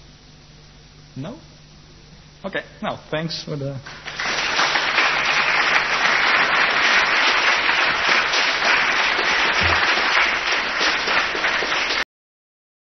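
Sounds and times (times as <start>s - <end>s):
audience applauding: 3.9s - 12.0s.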